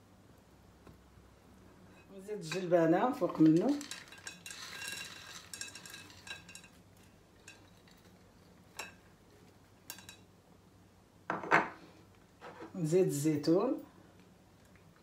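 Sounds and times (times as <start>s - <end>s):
peas pattering into a dish: 2.5s - 10.3s.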